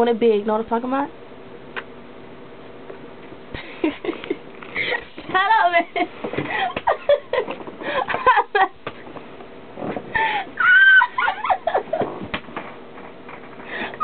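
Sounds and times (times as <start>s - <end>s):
woman laughing: 3.6s - 8.8s, 10.2s - 12.1s
high-pitched squeal of laughter: 10.6s - 11.8s.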